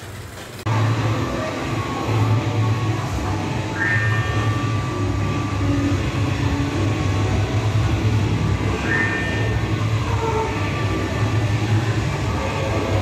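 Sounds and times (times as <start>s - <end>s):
kiddie ride rumbling: 0.0s - 13.0s
high squeal: 3.4s - 7.2s, 8.5s - 12.5s.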